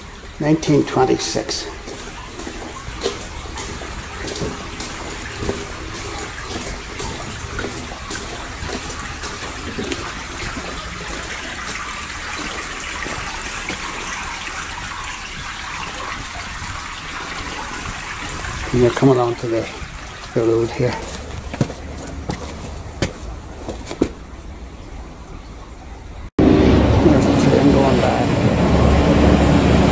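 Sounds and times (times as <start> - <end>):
running water rushing: 0.0 - 29.9
footsteps on wet concrete: 1.5 - 24.3.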